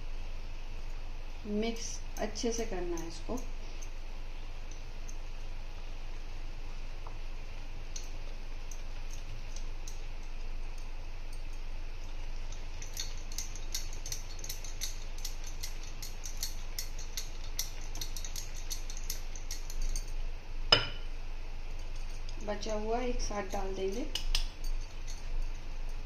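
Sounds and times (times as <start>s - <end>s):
whisk ticking against glass bowl: 7.9s - 20.1s, 21.8s - 26.0s.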